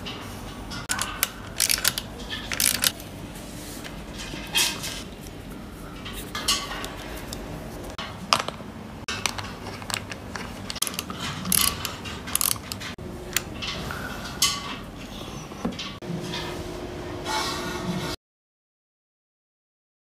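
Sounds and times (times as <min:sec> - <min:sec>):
metallic clicks of wrench and bolts: 0:00.9 - 0:03.0, 0:10.7 - 0:13.5.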